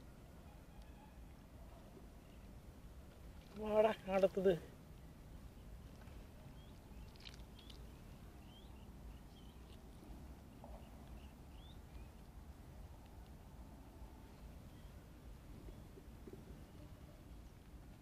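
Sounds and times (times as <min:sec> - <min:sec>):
small bird chirping: 0:05.5 - 0:12.2.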